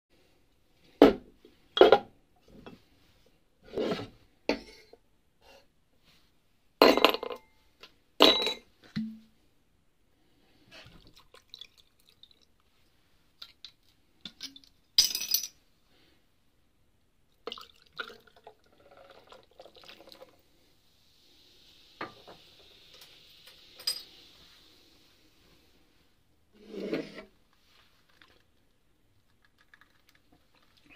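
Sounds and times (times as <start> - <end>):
bottles and ice clinking on glass: 8.2 - 9.2, 14.3 - 15.6, 23.8 - 24.1
liquid pouring into glass: 11.0 - 12.5, 17.5 - 20.3, 29.4 - 30.9
liquid pouring over ice: 11.1 - 12.5, 29.2 - 30.9.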